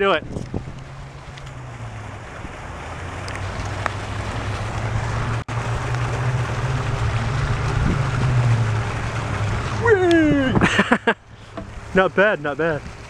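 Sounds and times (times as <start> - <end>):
wind noise on microphone: 0.0 - 5.4, 6.3 - 10.8.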